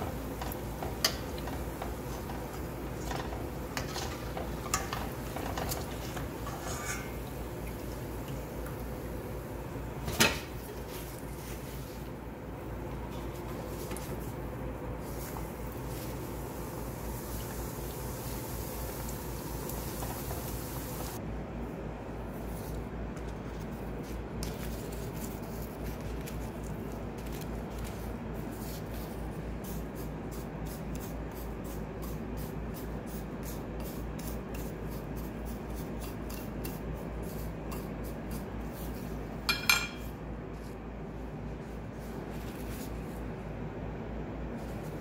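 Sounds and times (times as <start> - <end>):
chopsticks scraping sugar in bowl: 3.1 - 7.2, 29.8 - 40.1.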